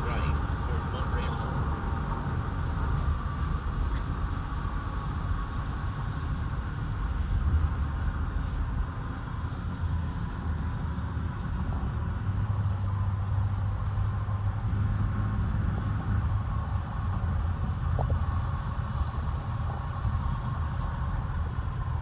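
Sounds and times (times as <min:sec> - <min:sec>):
car road noise rumble: 0:00.0 - 0:22.0.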